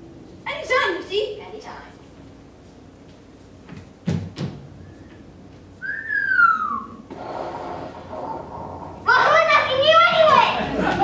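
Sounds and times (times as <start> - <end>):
whistle sliding down in pitch: 5.8 - 7.0.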